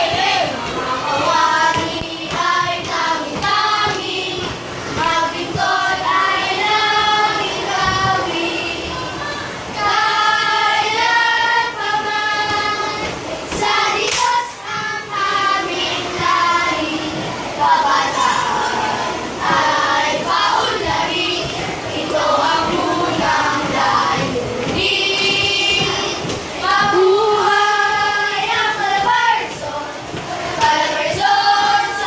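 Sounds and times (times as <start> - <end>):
children singing in unison: 0.0 - 32.0
sharp claps or knocks: 13.5 - 14.9.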